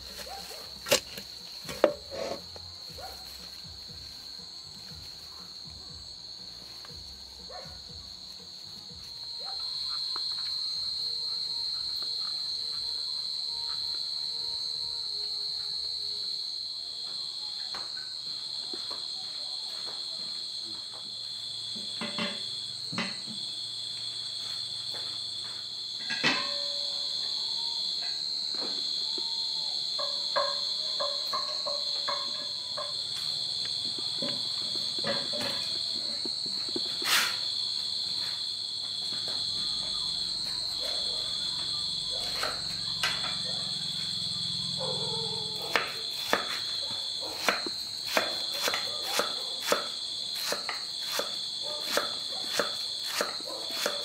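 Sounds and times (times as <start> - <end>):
insect trilling: 0.0 - 16.8, 25.8 - 51.6
insect high-pitched drone: 0.0 - 54.0.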